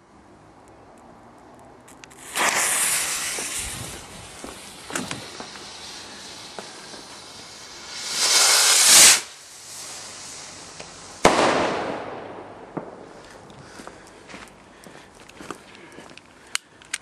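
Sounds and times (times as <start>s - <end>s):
faint crackles: 0.6s - 11.2s
firework rocket hissing: 2.1s - 13.2s
firework bang: 2.2s - 13.2s.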